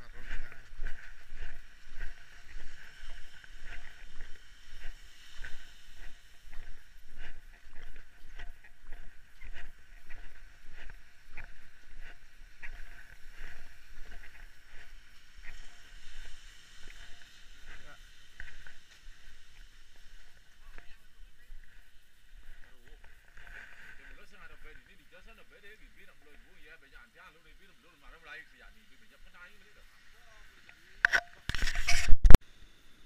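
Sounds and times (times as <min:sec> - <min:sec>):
wind rumble on microphone: 0:00.0 - 0:23.7
footsteps crunching on sand: 0:00.0 - 0:30.8
surf hiss: 0:00.0 - 0:31.9.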